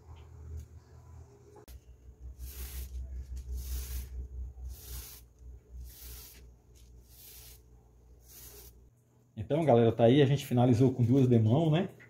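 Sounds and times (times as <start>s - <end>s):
paint roller hissing on metal: 2.3s - 8.8s.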